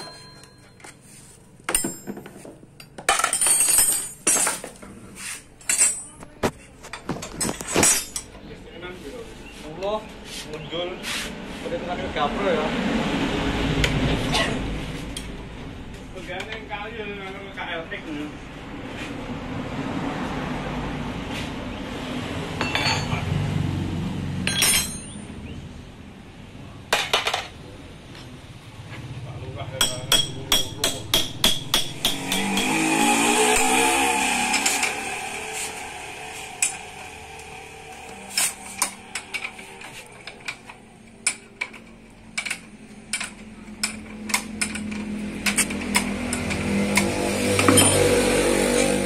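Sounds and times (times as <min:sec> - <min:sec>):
steel tools clinking on metal: 0:00.0 - 0:01.0, 0:01.7 - 0:04.8, 0:05.6 - 0:08.4, 0:22.6 - 0:23.2, 0:24.4 - 0:25.3
metal tools clinking: 0:00.0 - 0:05.0, 0:05.6 - 0:08.4, 0:22.6 - 0:23.2, 0:24.4 - 0:25.3, 0:38.1 - 0:47.0.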